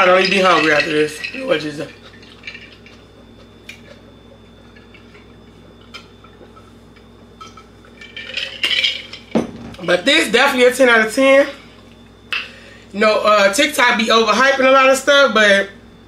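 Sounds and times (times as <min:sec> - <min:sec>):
ice clinking against glass: 0:00.0 - 0:03.0, 0:07.4 - 0:09.6.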